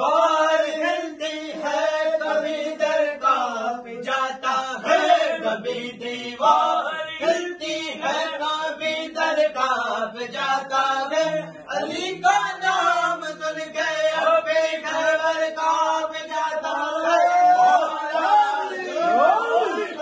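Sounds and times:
men singing devotional chant: 0:00.0 - 0:20.0.

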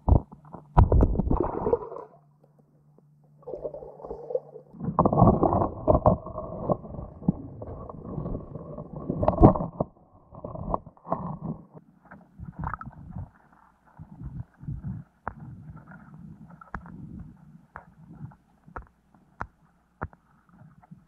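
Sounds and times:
muffled underwater rumbles: 0:00.0 - 0:02.2, 0:03.4 - 0:18.4
underwater knocks: 0:04.8 - 0:11.6.

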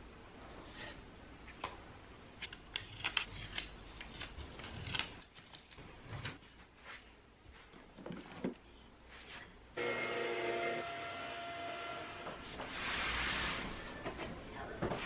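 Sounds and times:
paper and tape peeling off wall: 0:12.4 - 0:14.0.

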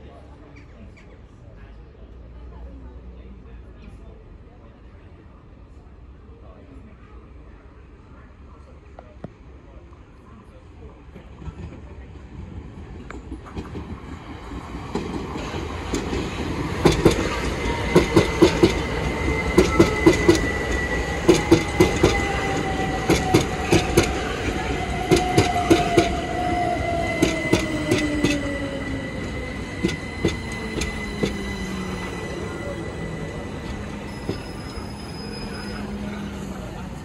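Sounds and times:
train wheels clicking over rail joints: 0:13.1 - 0:26.2, 0:27.0 - 0:28.6, 0:29.7 - 0:31.8
train motor whine: 0:16.9 - 0:37.0.

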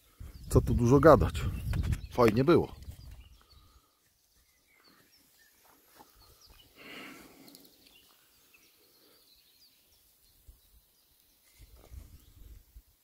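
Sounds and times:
distant bird chirps: 0:00.0 - 0:12.6
soft rustle: 0:10.1 - 0:12.9.

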